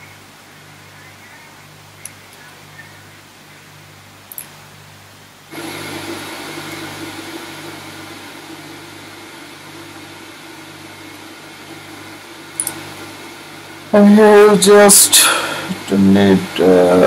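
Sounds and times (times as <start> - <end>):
low electrical hum: 0.0 - 17.0
steady whirring: 5.5 - 17.0.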